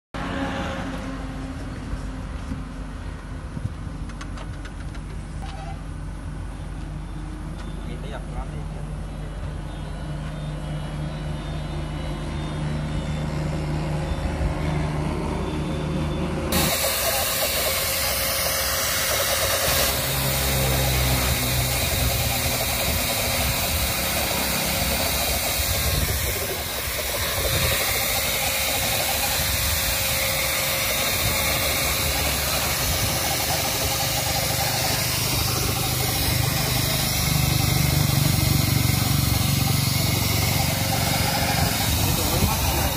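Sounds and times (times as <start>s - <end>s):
motor humming: 9.4s - 42.9s
spray gun hissing: 16.5s - 42.9s.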